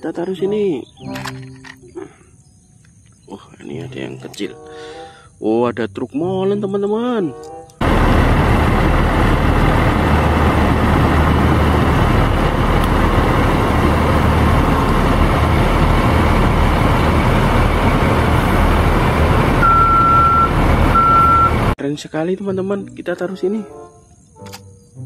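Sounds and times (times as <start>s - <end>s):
diesel truck engine rumbling: 7.8s - 21.8s.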